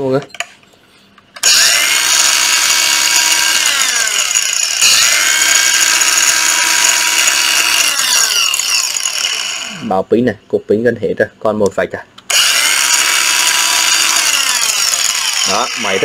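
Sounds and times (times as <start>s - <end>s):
angle grinder motor whine: 1.4s - 9.9s, 12.3s - 16.0s.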